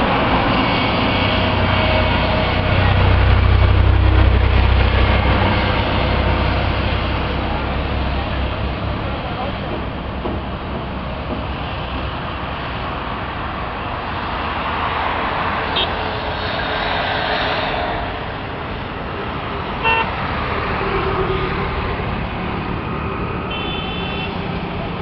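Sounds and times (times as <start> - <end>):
highway traffic rumble: 0.0 - 25.0
long vehicle horn: 19.8 - 20.1, 23.4 - 24.5
vehicle horn toots: 19.8 - 20.1, 23.5 - 24.4.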